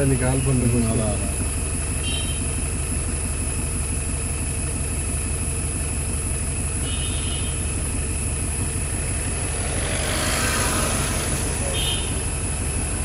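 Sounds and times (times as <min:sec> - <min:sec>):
vehicle engine idling: 0:00.0 - 0:13.0
broad rush of noise: 0:08.6 - 0:13.0.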